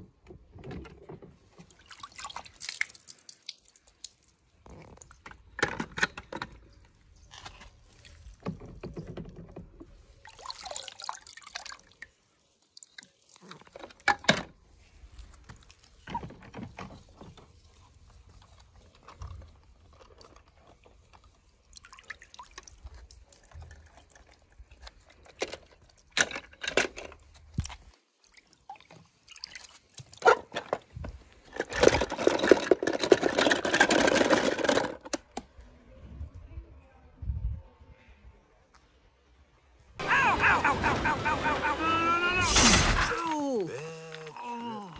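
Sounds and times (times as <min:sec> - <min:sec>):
water pouring: 0:01.5 - 0:05.2, 0:10.0 - 0:14.0
water dripping and splashing: 0:01.5 - 0:05.3, 0:10.0 - 0:14.0, 0:17.7 - 0:26.2, 0:27.5 - 0:30.2.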